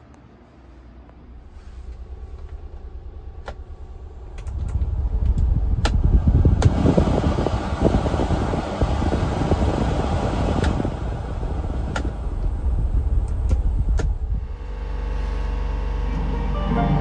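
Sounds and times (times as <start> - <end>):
low steady rumble: 0.0 - 17.0
blower fan air rushing: 0.6 - 16.4
dashboard control clicks: 11.9 - 12.1.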